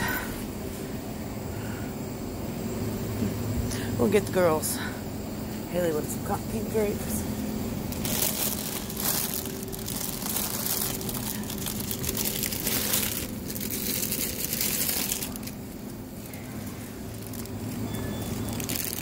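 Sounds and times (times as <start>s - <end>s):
refrigerated case humming: 0.0s - 19.0s
plastic bags crinkling: 7.8s - 19.0s.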